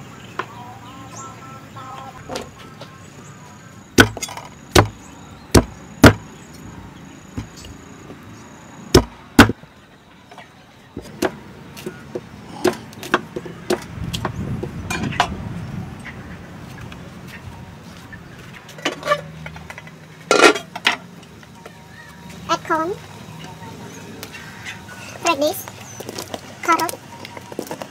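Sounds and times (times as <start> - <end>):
cleaver chopping on wooden block: 4.0 - 6.3, 9.0 - 9.6, 12.6 - 14.3.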